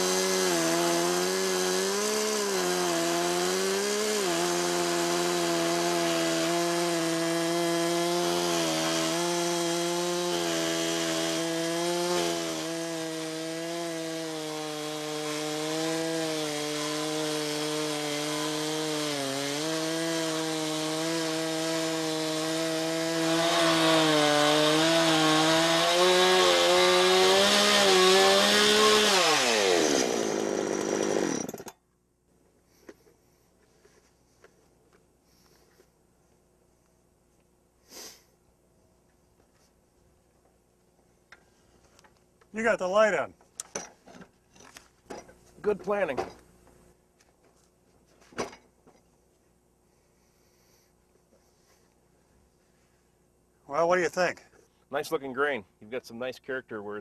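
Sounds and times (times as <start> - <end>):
chainsaw cutting log: 0.0 - 31.8.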